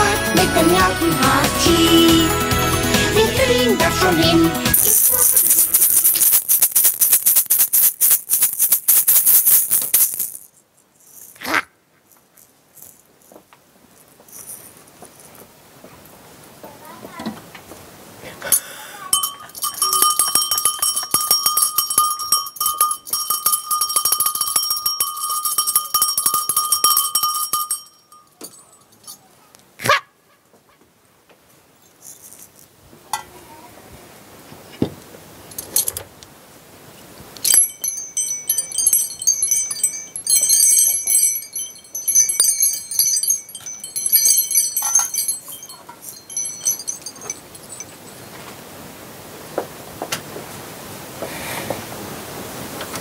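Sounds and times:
high fluttering tinkling: 4.7 - 11.3, 19.1 - 29.3, 37.4 - 48.4.

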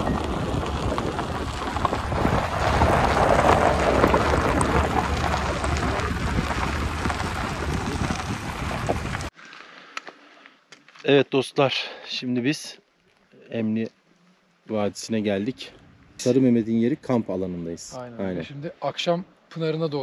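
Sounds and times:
wind buffeting microphone: 0.0 - 9.3.

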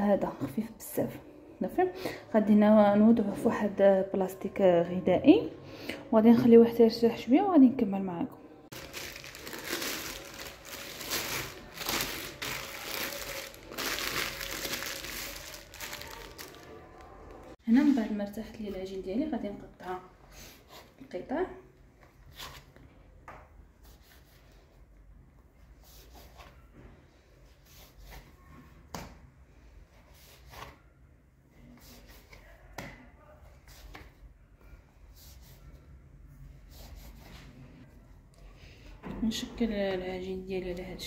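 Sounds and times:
plastic wrap crinkling: 8.7 - 17.6.

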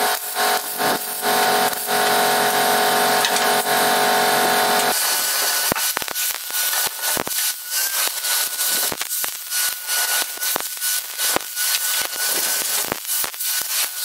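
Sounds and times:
machine drone with held tones: 0.0 - 8.0
angle grinder grinding steel: 0.0 - 14.0
grinder sharp clicks: 3.2 - 3.6.

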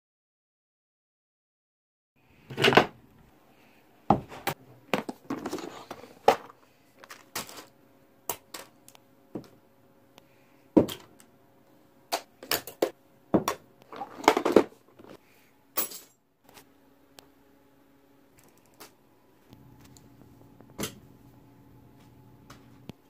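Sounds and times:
faint steady hum: 2.2 - 23.0
plastic items clicking and knocking: 4.4 - 9.6, 12.1 - 15.2.

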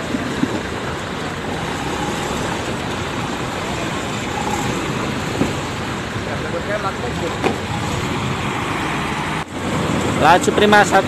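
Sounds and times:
bus engine running: 0.0 - 11.0.

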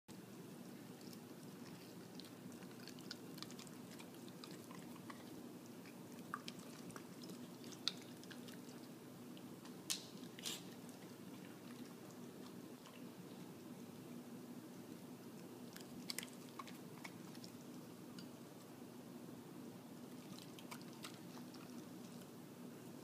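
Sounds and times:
dog chewing and lip-smacking: 0.1 - 14.1, 15.3 - 18.7, 20.0 - 22.4
steady low hum: 0.1 - 23.0.

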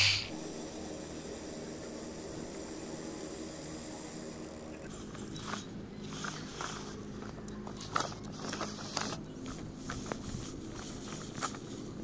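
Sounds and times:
electric motors whining: 0.0 - 9.3
plastic wheels and frame clattering: 4.9 - 12.0.

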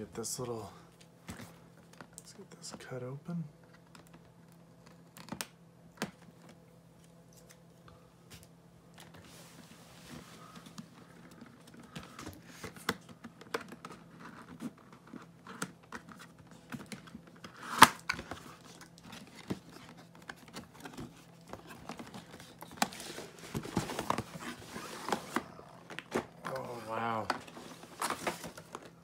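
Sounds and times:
cardboard box handled rustling: 18.6 - 29.0.

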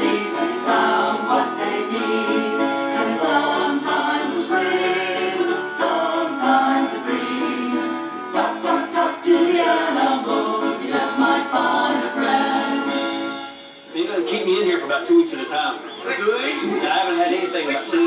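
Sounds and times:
choir singing: 0.0 - 13.6.

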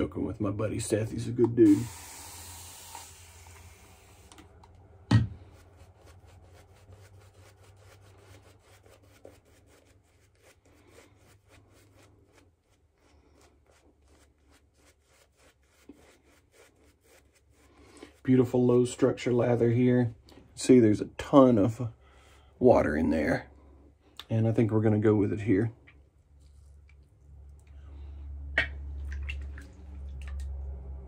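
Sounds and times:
shaving brush rubbing lather: 1.0 - 4.4, 5.4 - 19.7
hiss: 1.7 - 4.4.

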